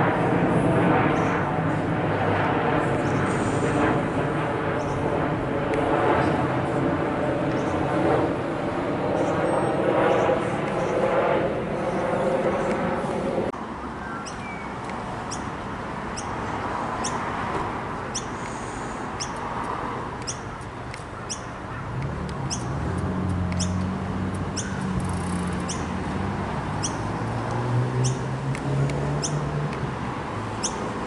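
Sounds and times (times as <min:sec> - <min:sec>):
low steady drone: 0:00.0 - 0:14.0
jet airliner rumble: 0:00.0 - 0:31.0
small bird chirping: 0:14.0 - 0:14.7, 0:15.3 - 0:15.5, 0:16.2 - 0:16.4, 0:17.0 - 0:17.2, 0:18.1 - 0:19.4, 0:20.2 - 0:20.6, 0:21.3 - 0:21.6, 0:22.4 - 0:22.8, 0:23.6 - 0:23.8, 0:24.5 - 0:25.9, 0:26.8 - 0:27.1, 0:28.0 - 0:28.2, 0:29.2 - 0:29.5, 0:30.6 - 0:30.8.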